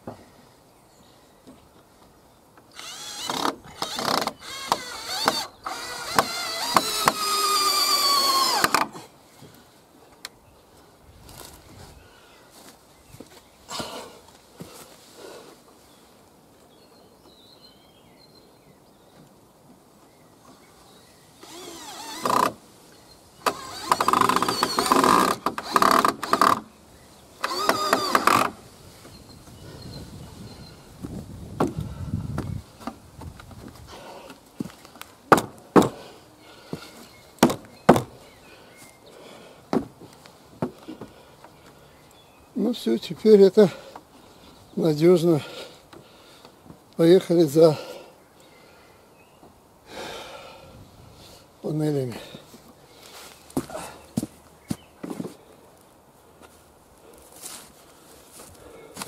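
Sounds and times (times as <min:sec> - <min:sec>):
cordless drill motor whining: 0:02.7 - 0:09.0, 0:21.4 - 0:22.6, 0:23.4 - 0:26.7, 0:27.4 - 0:28.6.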